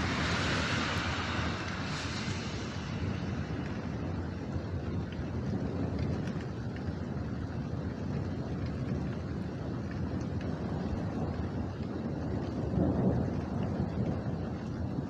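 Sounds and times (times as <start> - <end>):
rolling thunder: 0.0 - 6.4, 12.0 - 15.0.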